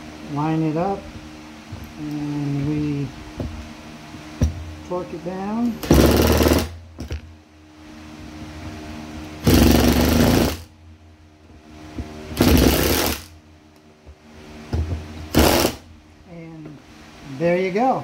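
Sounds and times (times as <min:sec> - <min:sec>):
impact driver hammering screws: 0:05.8 - 0:07.2, 0:09.4 - 0:10.7, 0:12.4 - 0:13.3, 0:15.3 - 0:15.8.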